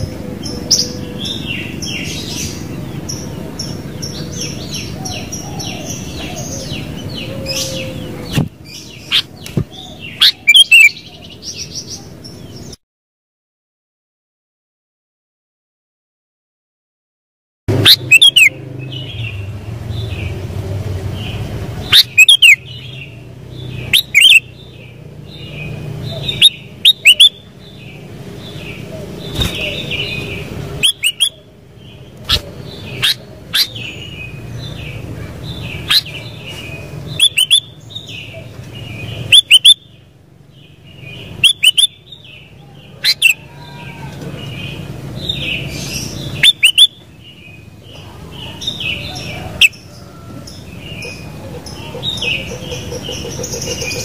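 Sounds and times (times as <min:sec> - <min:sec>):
bulbul whistled calls: 0:04.8 - 0:11.0, 0:17.8 - 0:18.6, 0:21.8 - 0:23.0, 0:23.8 - 0:24.5, 0:26.1 - 0:27.4, 0:29.3 - 0:31.4, 0:32.3 - 0:34.1, 0:35.6 - 0:36.3, 0:37.1 - 0:38.5, 0:39.1 - 0:39.9, 0:41.2 - 0:42.3, 0:43.0 - 0:43.7, 0:45.4 - 0:47.0.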